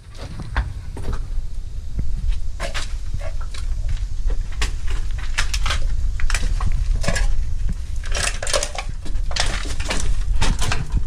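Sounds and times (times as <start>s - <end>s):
low rumble: 0.0s - 11.0s
footsteps on loose rocks: 2.0s - 11.0s
stones and cans clattering: 8.0s - 11.0s.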